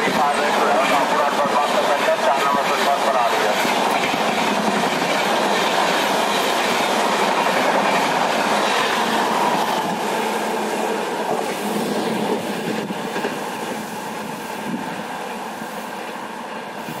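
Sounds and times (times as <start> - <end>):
train coaches rushing past: 0.0 - 17.0.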